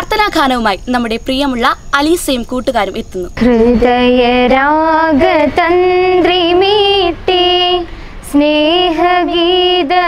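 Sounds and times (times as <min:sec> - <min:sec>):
girls singing a prayer song: 0:03.4 - 0:10.0.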